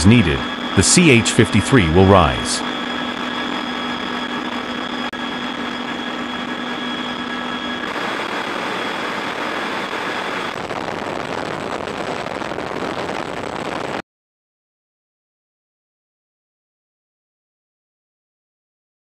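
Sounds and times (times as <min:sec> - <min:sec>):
helicopter engines and rotors roaring: 0:00.0 - 0:11.1.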